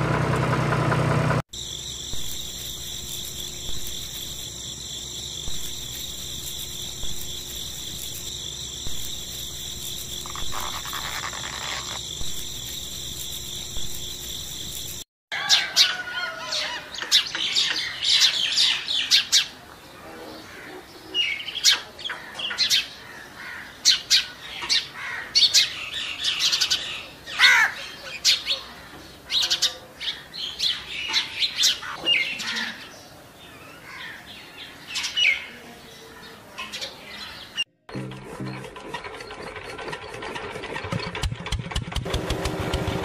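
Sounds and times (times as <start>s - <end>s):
bird calls sliding downward: 9.8s - 12.0s.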